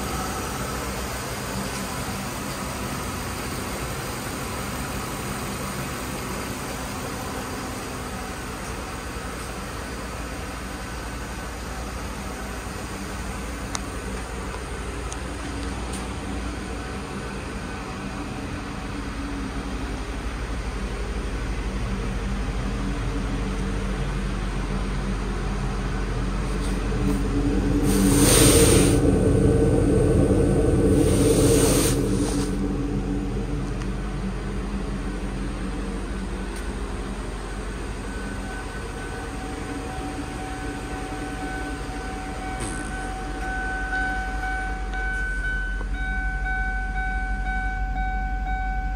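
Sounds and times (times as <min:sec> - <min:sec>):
car engine idling: 0:00.0 - 0:48.9
steady high tones: 0:22.8 - 0:48.9.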